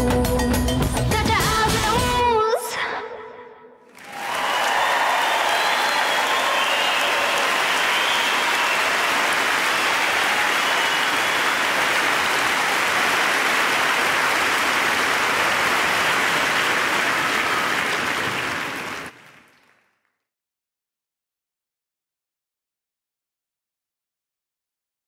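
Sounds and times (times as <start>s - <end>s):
crowd applauding: 3.9s - 20.2s.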